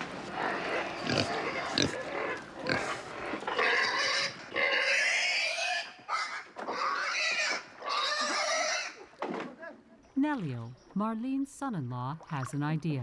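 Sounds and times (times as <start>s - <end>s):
pig squealing: 0.3s - 9.0s.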